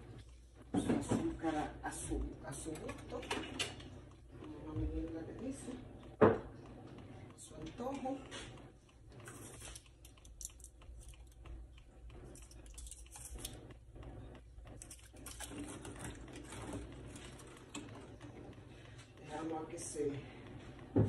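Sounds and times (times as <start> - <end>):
spoon stirring in plastic pitcher: 0.0 - 20.9.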